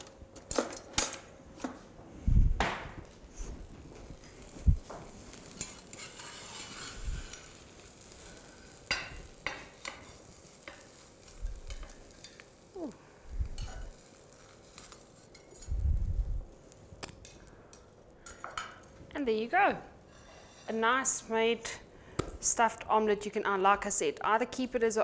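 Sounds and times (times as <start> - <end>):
spatula scraping frying pan: 5.4 - 12.4, 20.1 - 20.9.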